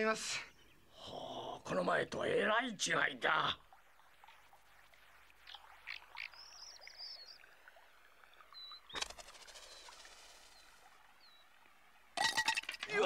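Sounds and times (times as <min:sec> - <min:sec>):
bird chirps: 0:05.4 - 0:07.4, 0:08.5 - 0:11.5.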